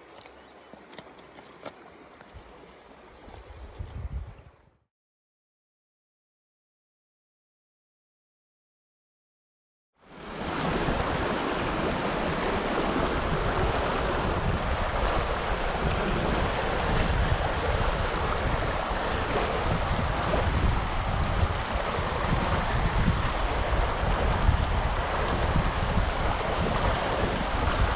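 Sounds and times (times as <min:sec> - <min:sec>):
wind buffeting microphone: 0:03.3 - 0:04.7, 0:10.2 - 0:27.9
stream rushing over rocks: 0:10.1 - 0:27.9.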